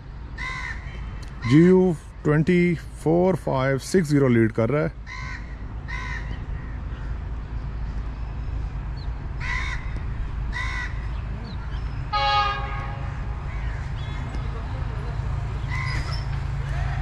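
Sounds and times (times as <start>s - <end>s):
low train rumble: 0.0s - 17.0s
crow cawing: 0.4s - 1.0s, 5.0s - 7.2s, 9.4s - 11.1s, 13.4s - 14.2s, 15.6s - 17.0s
locomotive horn blast: 12.1s - 13.4s.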